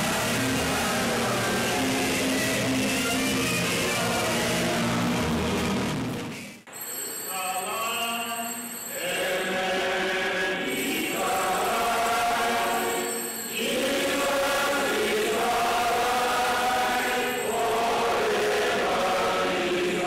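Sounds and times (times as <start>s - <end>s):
choir singing a hymn: 0.0s - 3.1s, 8.9s - 20.0s.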